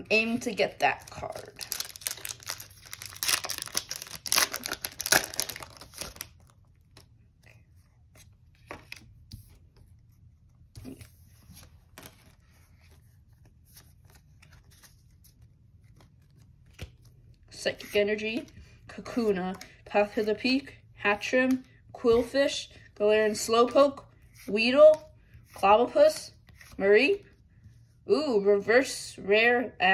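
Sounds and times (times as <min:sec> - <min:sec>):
wrapper tearing with crinkling rip: 0:01.3 - 0:06.4.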